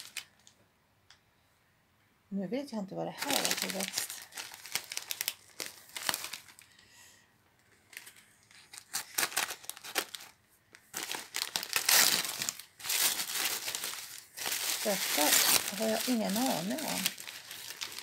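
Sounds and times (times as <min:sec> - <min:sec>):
paper rustling and crinkling: 0:00.0 - 0:00.3, 0:03.2 - 0:06.7, 0:07.7 - 0:18.0.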